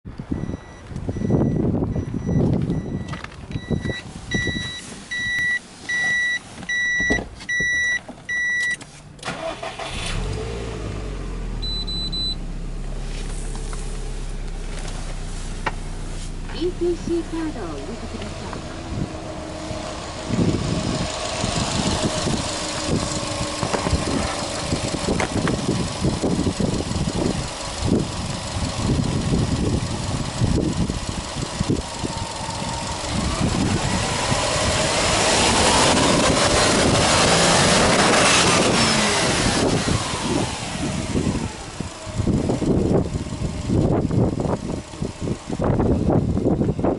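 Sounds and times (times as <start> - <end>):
car warning chime beeping: 0.3 - 8.8, 11.6 - 12.5
car starter cranking engine: 6.8 - 46.6.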